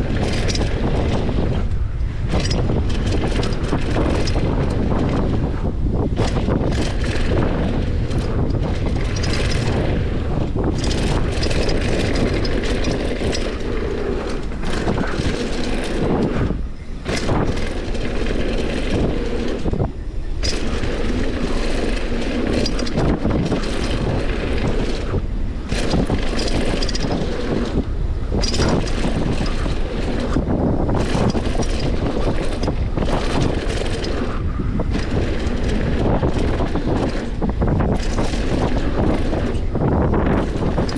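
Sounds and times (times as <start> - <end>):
bike rattling: 0.0 - 40.9
tyres rumbling on dirt: 0.0 - 40.9
wind buffeting microphone: 0.0 - 40.9.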